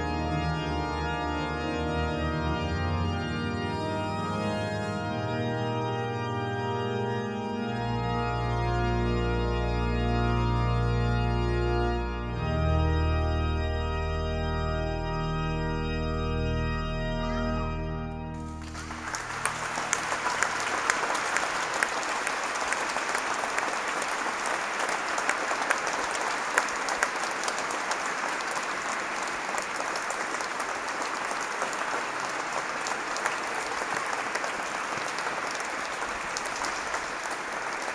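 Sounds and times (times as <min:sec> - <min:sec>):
pipe organ chord: 0:00.0 - 0:37.9
audience applauding: 0:03.7 - 0:05.3, 0:18.4 - 0:37.9.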